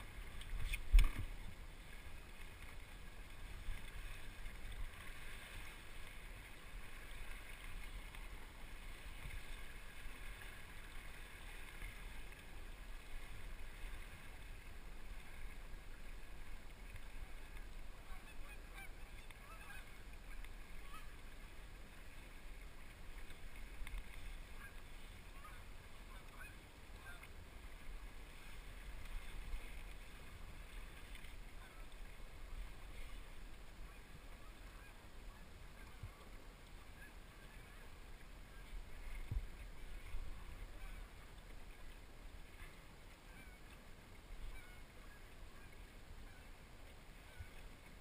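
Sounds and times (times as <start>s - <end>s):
geese honking: 18.0s - 21.2s
wind rumble on microphone: 38.5s - 41.8s.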